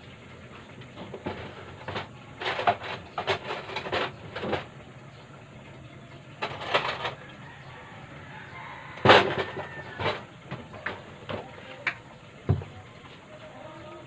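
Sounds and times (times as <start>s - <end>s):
kitchen utensils clattering: 0.9s - 4.8s, 6.3s - 7.7s, 9.0s - 11.6s.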